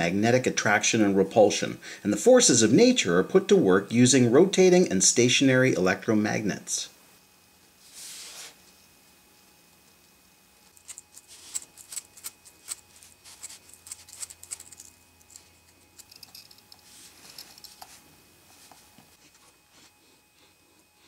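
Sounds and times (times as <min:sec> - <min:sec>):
plastic parts rubbing and scraping: 0:10.7 - 0:18.0.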